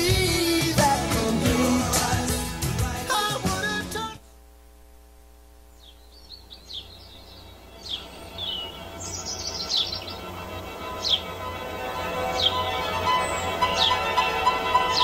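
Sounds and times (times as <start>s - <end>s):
birds chirping: 5.7s - 15.0s
soft chords and low drone music: 6.9s - 15.0s.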